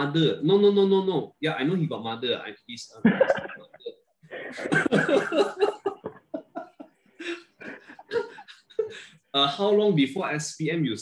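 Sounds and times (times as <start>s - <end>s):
men laughing: 3.0s - 10.0s.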